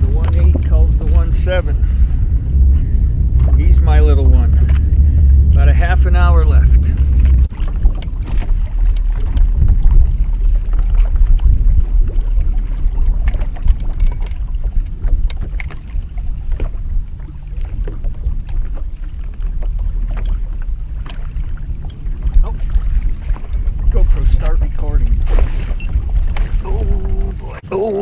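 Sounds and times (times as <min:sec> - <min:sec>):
water lapping at a boat: 0:00.0 - 0:28.0
wind rumbling on microphone: 0:00.0 - 0:28.0.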